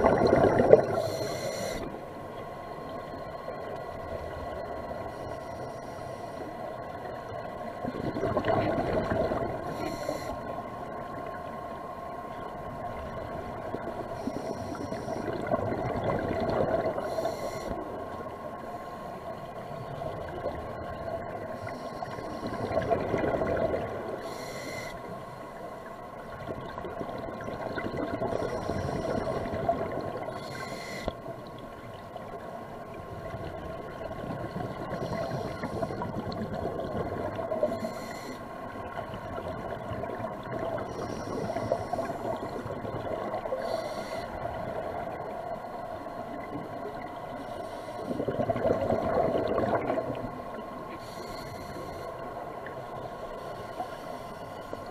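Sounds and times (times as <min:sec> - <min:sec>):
underwater bubbles: 0:00.0 - 0:54.9
breathing through a regulator: 0:00.4 - 0:02.0, 0:05.0 - 0:06.7, 0:09.6 - 0:10.6, 0:14.0 - 0:15.6, 0:16.4 - 0:19.3, 0:21.4 - 0:25.6, 0:28.1 - 0:31.2, 0:34.8 - 0:36.3, 0:37.4 - 0:38.7, 0:40.8 - 0:44.6, 0:47.4 - 0:49.2, 0:50.9 - 0:52.4, 0:53.4 - 0:54.9.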